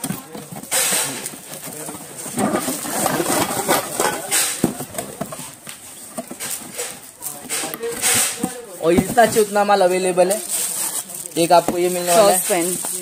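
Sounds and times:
cardboard rustling and scraping: 0.0 - 13.0
cookware knocking and clattering: 2.4 - 5.3.

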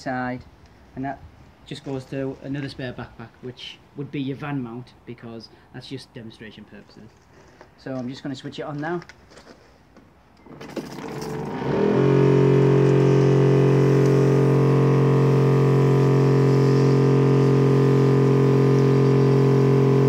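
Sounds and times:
electric pump humming: 10.5 - 20.0.

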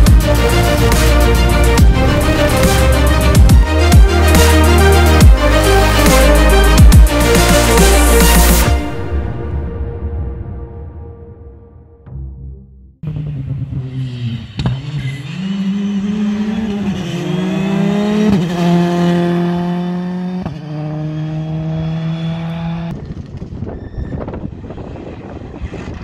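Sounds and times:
rally car engine revving: 13.0 - 22.9.

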